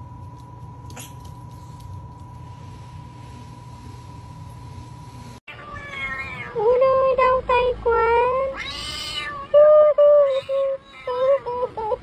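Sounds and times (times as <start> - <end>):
cat meowing: 5.5 - 6.6, 8.5 - 9.6.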